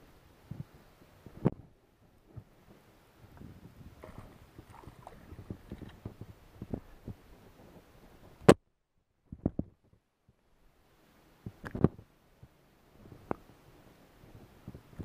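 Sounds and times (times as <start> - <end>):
handling knocks and rustles: 3.4 - 7.2.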